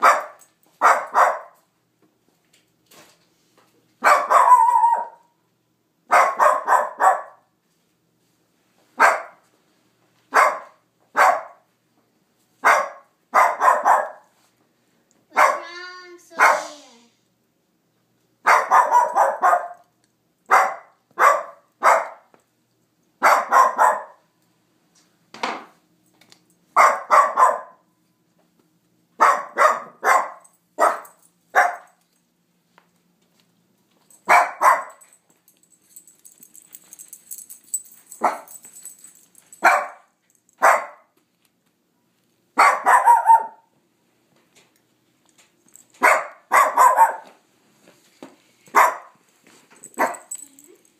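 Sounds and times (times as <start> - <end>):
small dog barking: 0.0 - 1.6, 4.0 - 5.3, 6.1 - 7.5, 9.0 - 9.4, 10.3 - 11.6, 12.6 - 14.3, 15.3 - 16.8, 18.4 - 19.9, 20.5 - 22.3, 23.2 - 24.3, 26.8 - 27.8, 29.2 - 32.0, 34.3 - 35.0, 38.2 - 38.5, 39.6 - 41.2, 42.6 - 43.7, 46.0 - 47.4, 48.7 - 49.2, 49.9 - 50.6
faint hiss: 16.2 - 17.2.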